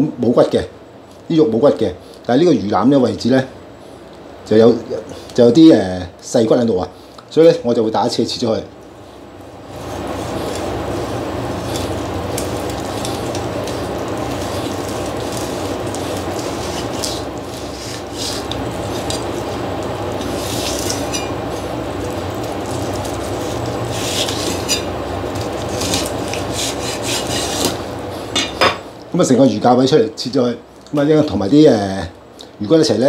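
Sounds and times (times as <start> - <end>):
cleaver scraping on chopping board: 25.6 - 27.8.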